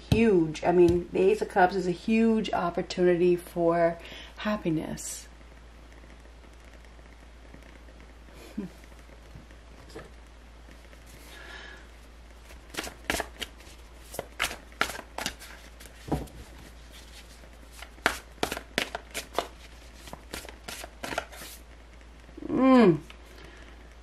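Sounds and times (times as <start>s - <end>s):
cards being shuffled: 12.5s - 21.6s.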